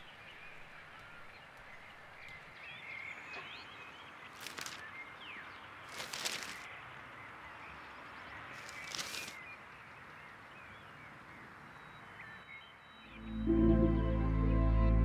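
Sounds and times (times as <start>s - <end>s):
outdoor ambience: 0.0s - 15.0s
newspaper rustling: 4.3s - 4.8s, 5.9s - 6.7s, 8.6s - 9.4s
soft ambient music: 12.8s - 15.0s.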